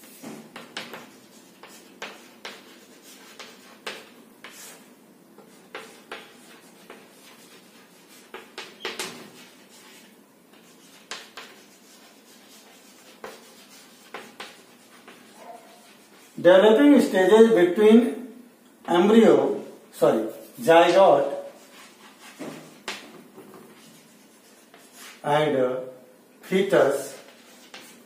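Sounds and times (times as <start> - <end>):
chalk tapping and scraping on blackboard: 0.0 - 16.4, 20.3 - 25.2, 26.9 - 28.0.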